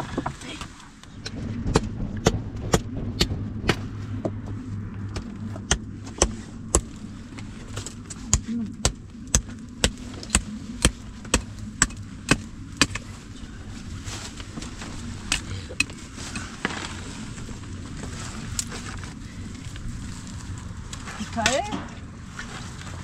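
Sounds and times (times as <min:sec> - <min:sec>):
sharp knocks: 0:01.2 - 0:06.9.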